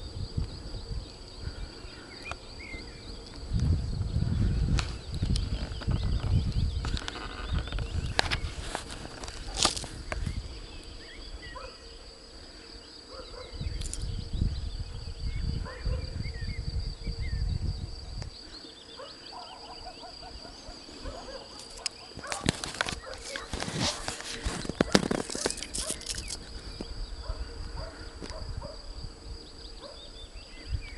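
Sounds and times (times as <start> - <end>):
bird chirps: 18.3 - 23.5.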